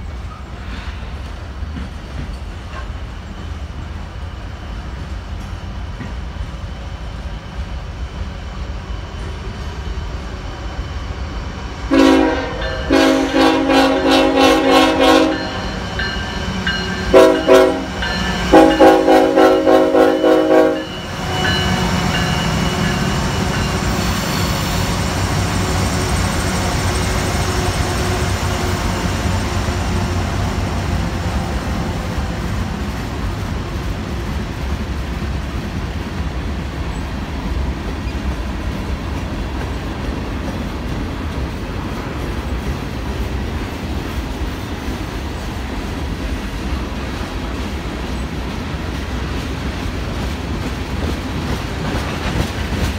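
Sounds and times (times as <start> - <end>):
train cars rumbling past: 0.0 - 52.9
locomotive air horn blasts: 11.9 - 15.8, 17.1 - 21.4.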